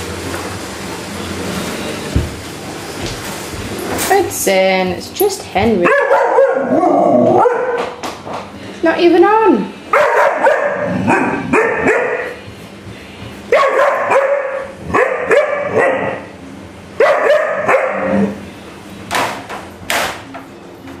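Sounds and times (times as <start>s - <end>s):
puppy barking and wooing: 5.8s - 7.8s, 10.0s - 12.3s, 13.5s - 16.2s, 17.0s - 18.1s.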